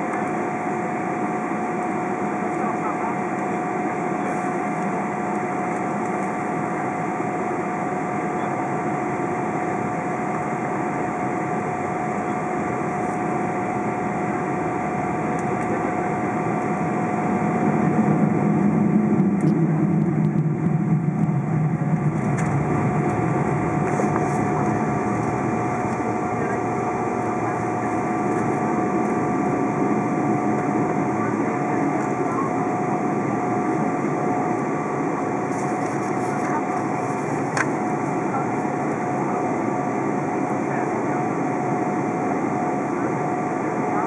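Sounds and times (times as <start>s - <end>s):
aircraft engine hum: 0.0s - 44.0s
steady whine: 0.0s - 44.0s
low rumble: 14.1s - 37.6s.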